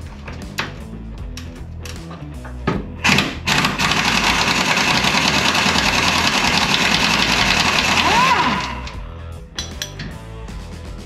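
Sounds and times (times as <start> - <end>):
impact wrench rattling: 3.0 - 9.0, 9.6 - 10.2.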